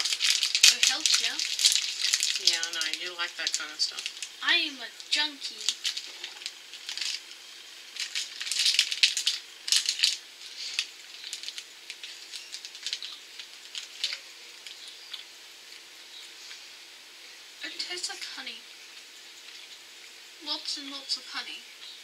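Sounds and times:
plastic wrapper crinkling: 0:00.0 - 0:16.6.

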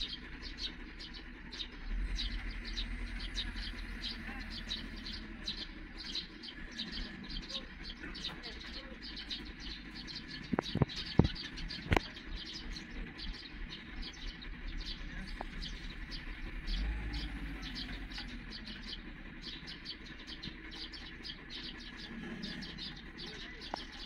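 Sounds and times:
small birds chirping: 0:00.0 - 0:24.0.

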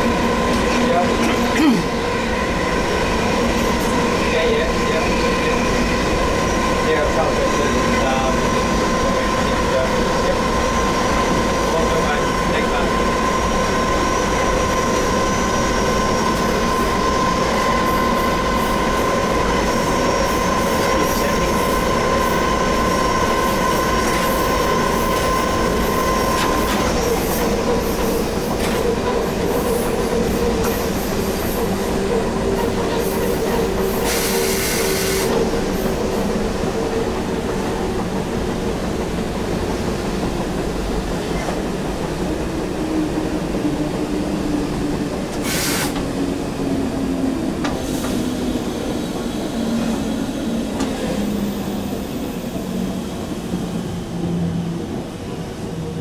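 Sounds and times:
locomotive whining tone: 0:00.0 - 0:39.8
wheels rumbling on rail: 0:00.0 - 0:56.0
hiss bursts: 0:34.0 - 0:35.3, 0:45.4 - 0:46.0.

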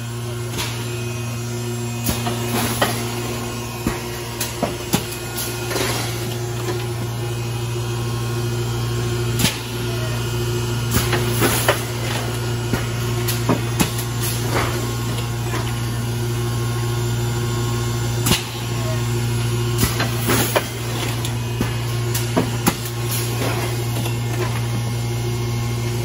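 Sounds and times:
industrial machinery humming: 0:00.0 - 0:26.0.

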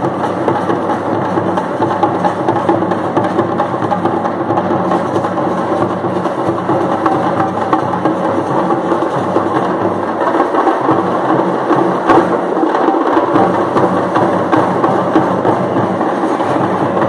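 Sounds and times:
frame drums beaten fast: 0:00.0 - 0:17.0.

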